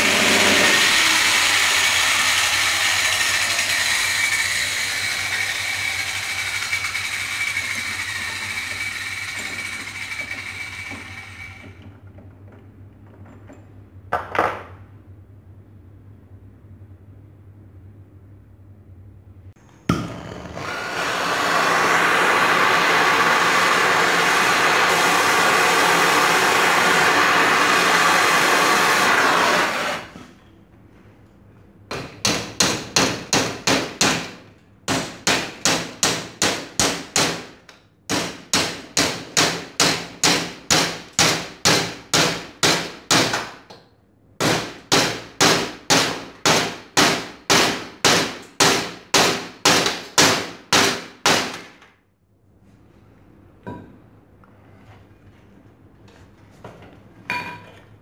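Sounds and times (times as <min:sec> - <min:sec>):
steady machine noise: 0:00.0 - 0:11.8.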